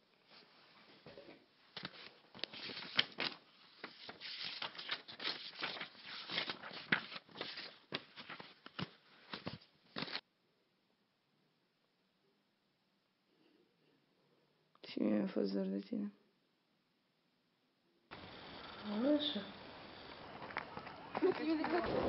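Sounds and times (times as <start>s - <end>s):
rustling and crackling: 0.1s - 10.2s.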